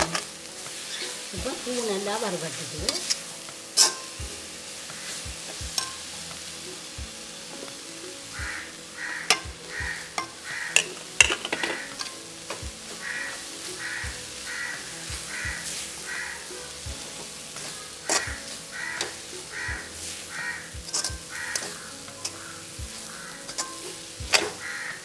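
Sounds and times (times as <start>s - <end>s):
light sizzle: 0.0s - 25.0s
metal spoon scraping a pan: 2.9s - 4.2s, 4.9s - 6.5s, 9.1s - 25.0s
bird calling: 8.3s - 12.0s, 13.0s - 16.7s, 17.6s - 23.8s, 24.4s - 25.0s
spoon clicking against pan: 20.9s - 22.4s, 23.5s - 24.6s.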